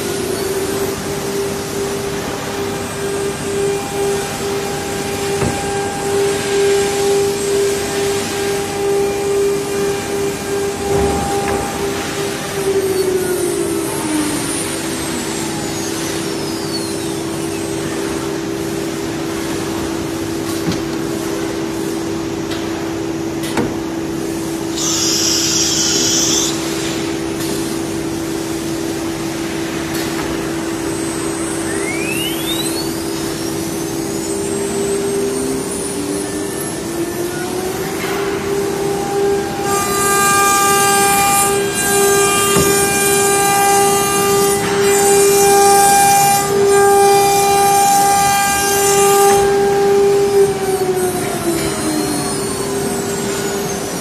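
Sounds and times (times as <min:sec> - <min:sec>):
router spindle whining: 0:31.0 - 0:54.0.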